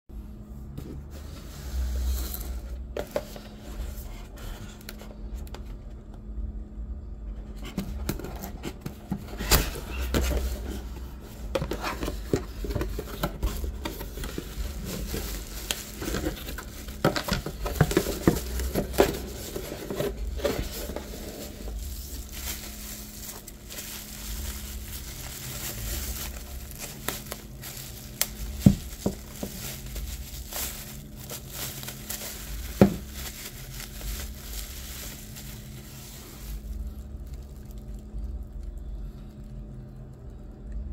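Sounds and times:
faint low hum: 0.1s - 40.9s
bubble wrap crinkling: 7.4s - 40.5s
cardboard box handled: 7.6s - 36.8s.

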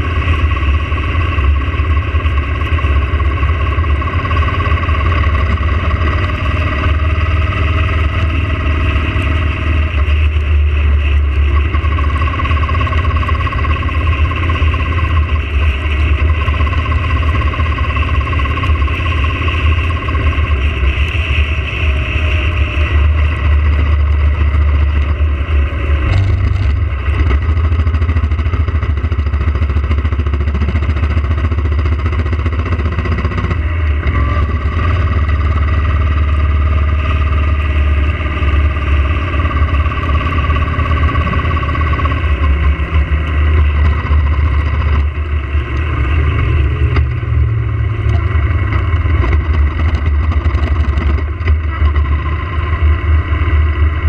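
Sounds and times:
motorcycle engine at road speed: 0.0s - 54.0s.

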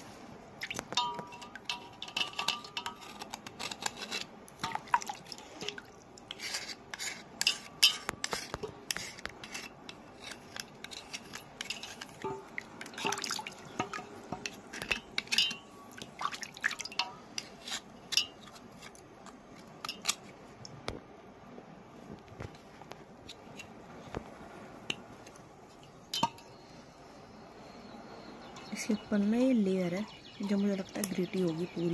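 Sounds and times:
water dripping and splashing: 0.6s - 3.0s, 4.5s - 6.4s, 11.7s - 17.5s
knife scraping stone: 2.2s - 4.8s, 6.3s - 12.2s, 17.4s - 20.2s.

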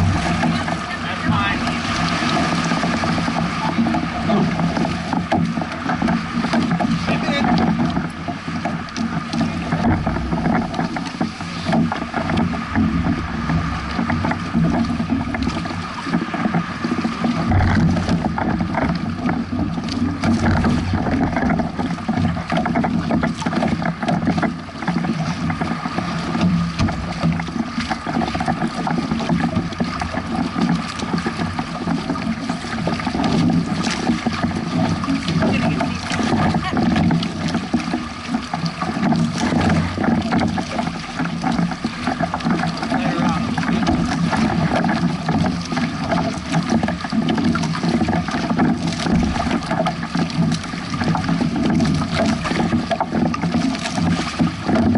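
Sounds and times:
wind buffeting microphone: 0.0s - 24.2s
water slapping against hulls: 0.0s - 54.9s.

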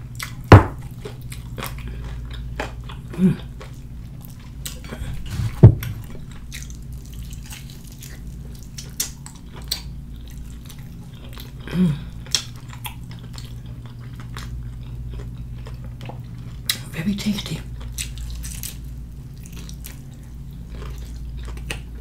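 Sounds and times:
person chewing fried chicken: 0.0s - 22.0s
loud thump: 5.0s - 6.2s.

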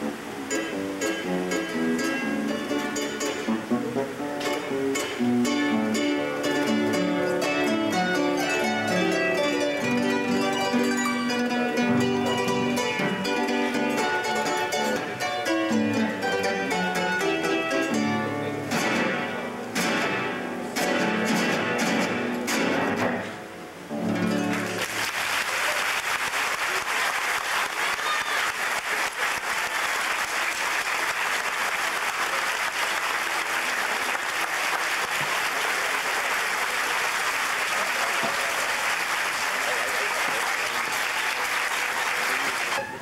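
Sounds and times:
audience applause: 24.4s - 43.0s.

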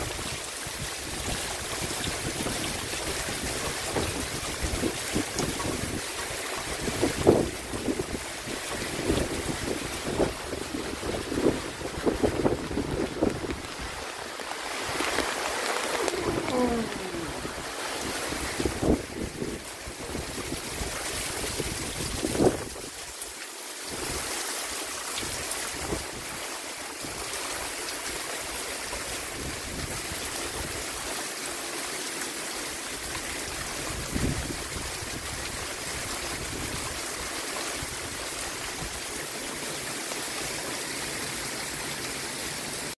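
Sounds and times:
heavy rain pouring: 0.0s - 42.9s
wind buffeting microphone: 8.8s - 14.0s, 15.9s - 20.8s.

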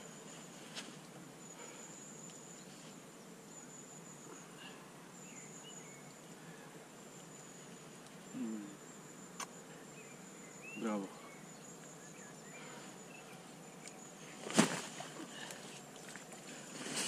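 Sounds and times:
faint bird chirps: 0.0s - 16.8s
faint outdoor background noise: 0.0s - 17.0s
insect trilling: 3.5s - 16.4s.

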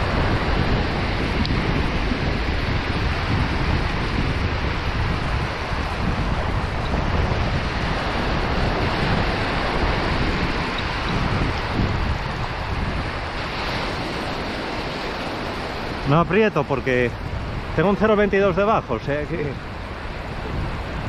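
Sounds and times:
small surf washing over sand: 0.0s - 21.0s
wind buffeting microphone: 0.0s - 21.0s.

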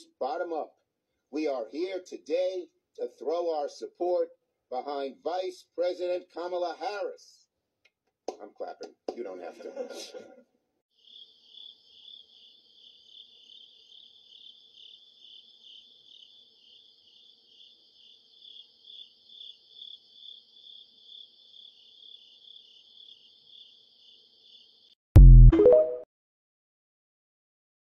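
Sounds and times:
crickets chirping: 11.0s - 25.0s.

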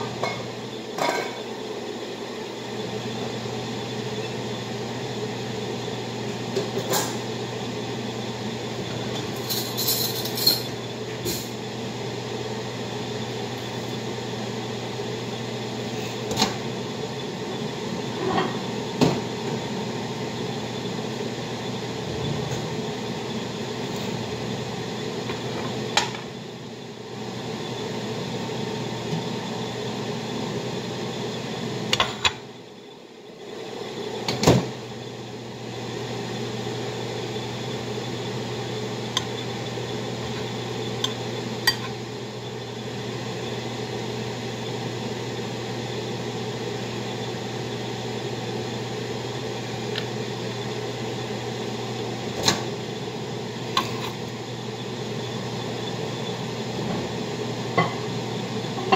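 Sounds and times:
kitchen appliance humming: 0.0s - 58.9s
utensils and dishes clattering: 0.2s - 1.4s, 9.2s - 11.5s
appliance clunk: 34.3s - 34.8s.

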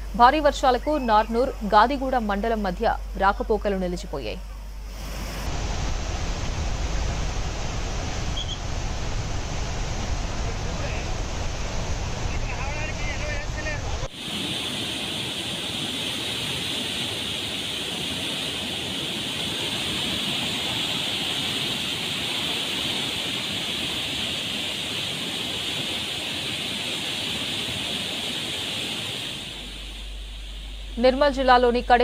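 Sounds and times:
floodwater rushing from spillway: 5.0s - 30.2s.

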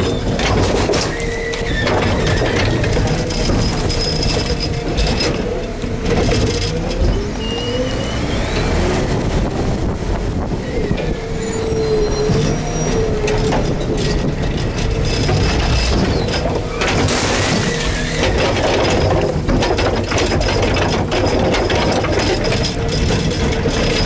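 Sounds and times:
garbage truck engine and hydraulics: 0.0s - 24.0s
wind buffeting microphone: 6.8s - 16.8s.

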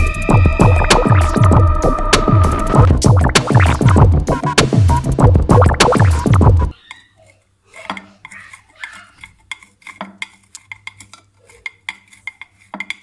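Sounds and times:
cheese grating on metal grater: 7.2s - 13.0s.

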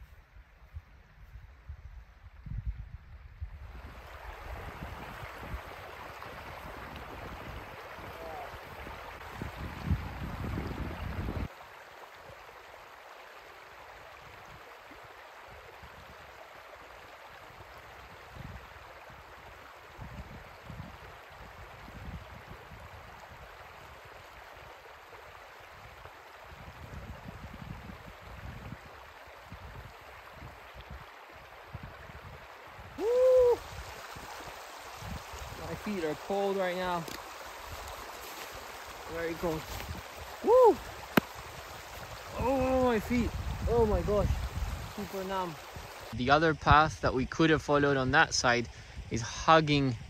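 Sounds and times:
stream running over stones: 3.5s - 50.0s
man's loud ooh: 33.0s - 33.7s, 40.4s - 40.9s.

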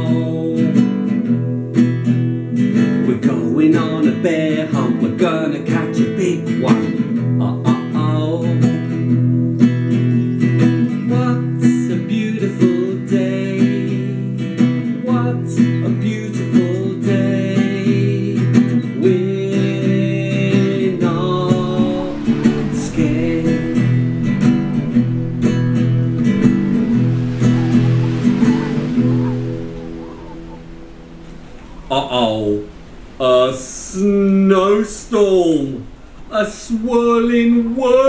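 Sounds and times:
man singing: 0.0s - 1.0s, 2.9s - 9.0s, 11.0s - 25.0s, 31.9s - 38.0s
classical guitar strummed: 0.0s - 33.2s
rushing wind-like noise: 18.0s - 38.0s.

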